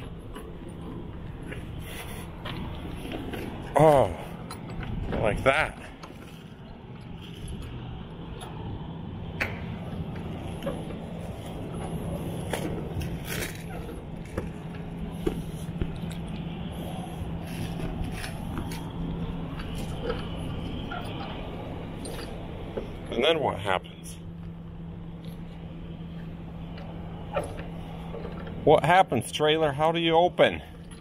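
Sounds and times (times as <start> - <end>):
low hum: 0.0 - 31.0.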